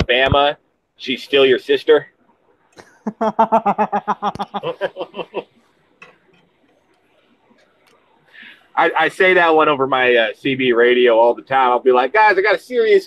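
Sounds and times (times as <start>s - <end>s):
man laughing: 4.6s - 5.4s.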